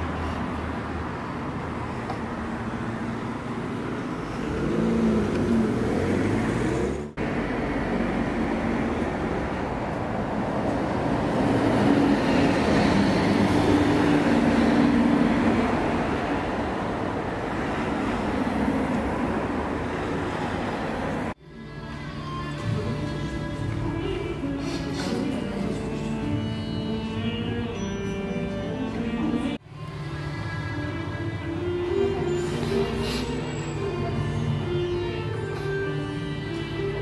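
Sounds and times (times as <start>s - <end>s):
bus passing close by: 0.0s - 21.4s, 22.6s - 37.0s
cars driving past: 0.0s - 22.0s, 22.6s - 37.0s.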